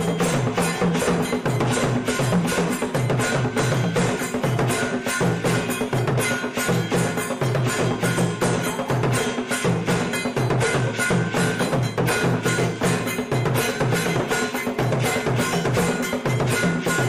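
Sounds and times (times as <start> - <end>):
music with percussive beat: 0.0 - 17.0.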